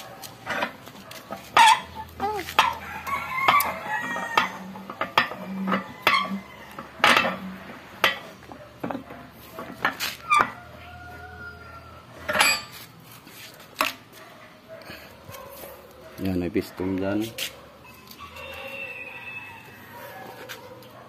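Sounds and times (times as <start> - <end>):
metal clinks and knocks: 0.2 - 2.8, 12.3 - 12.8
rooster crowing: 2.8 - 4.8, 5.5 - 7.0, 10.2 - 12.2, 18.0 - 20.4.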